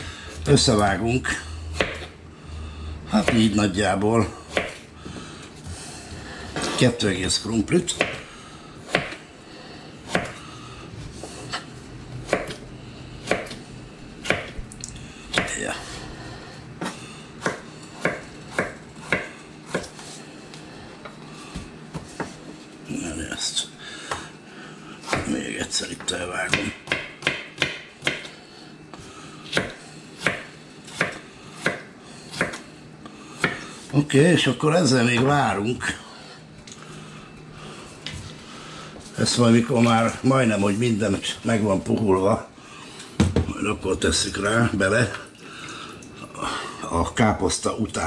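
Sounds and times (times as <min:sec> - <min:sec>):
knife chopping on cutting board: 0:01.8 - 0:02.1, 0:03.1 - 0:03.6, 0:04.5 - 0:04.9, 0:07.9 - 0:09.2, 0:10.1 - 0:10.4, 0:12.2 - 0:12.6, 0:13.2 - 0:13.6, 0:14.2 - 0:14.6, 0:15.3 - 0:15.6, 0:16.8 - 0:20.1, 0:26.5 - 0:28.4, 0:29.5 - 0:32.6, 0:33.4 - 0:33.6.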